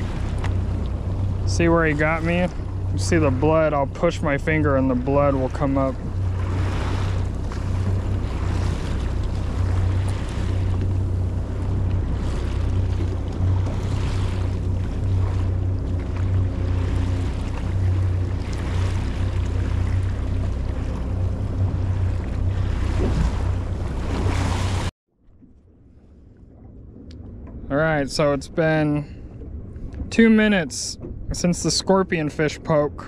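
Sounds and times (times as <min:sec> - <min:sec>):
wind buffeting microphone: 0:00.0 - 0:24.9
waves washing against hull: 0:00.0 - 0:33.0.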